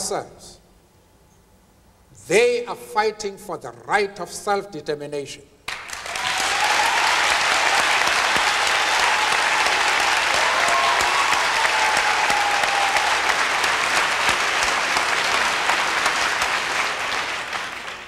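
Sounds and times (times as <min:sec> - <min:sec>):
audience applauding: 0:05.7 - 0:18.0.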